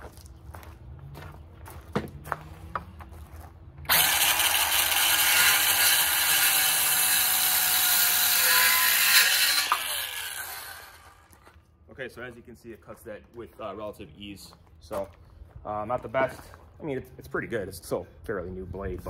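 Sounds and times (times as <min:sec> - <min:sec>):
circular saw cutting wood: 0:03.9 - 0:11.4.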